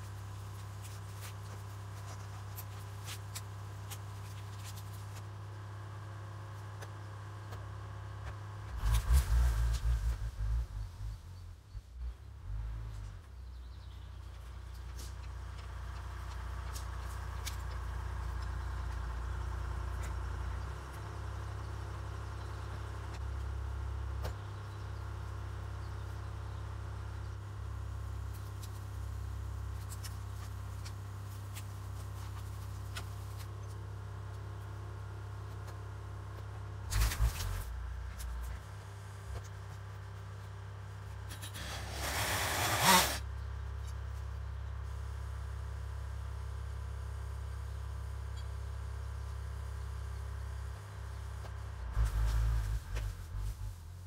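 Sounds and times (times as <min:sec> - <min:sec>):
scraping rustle: 0:36.9 - 0:38.6.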